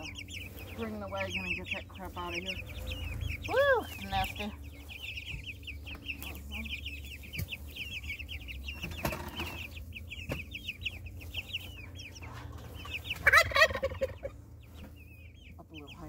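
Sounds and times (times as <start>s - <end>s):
chicks peeping: 0.0s - 16.0s
louder chicken call: 13.1s - 14.3s.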